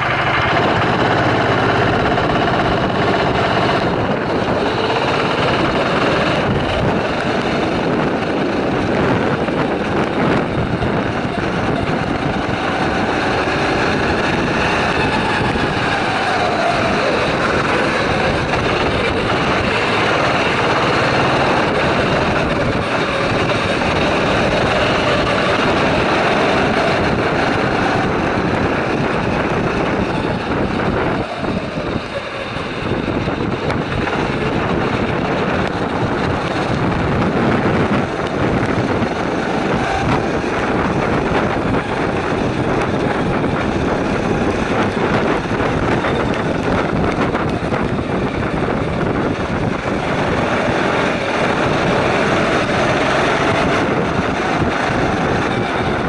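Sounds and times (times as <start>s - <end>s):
go-kart engines revving: 0.0s - 56.0s.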